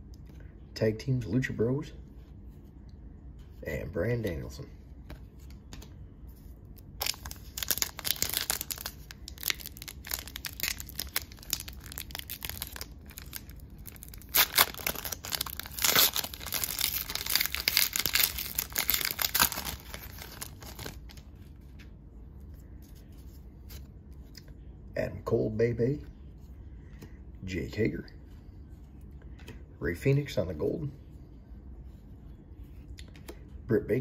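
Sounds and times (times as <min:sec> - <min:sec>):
wrapper tearing and crinkling: 0:06.8 - 0:21.2.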